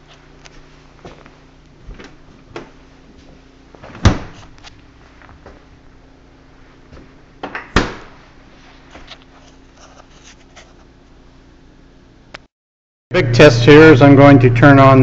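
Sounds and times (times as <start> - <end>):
refrigerator door closing thud: 3.8 - 4.4, 7.4 - 8.2.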